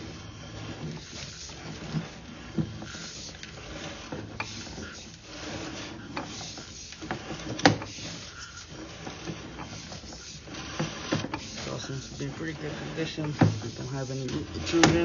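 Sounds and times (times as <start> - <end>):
cable scraping and rattling: 0.0 - 15.0.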